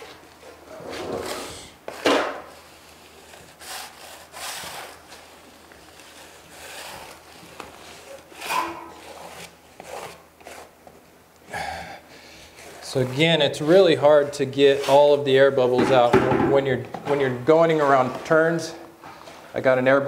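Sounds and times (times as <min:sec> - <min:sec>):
trowel scraping over membrane: 0:02.5 - 0:10.7, 0:12.5 - 0:16.1, 0:17.2 - 0:18.8.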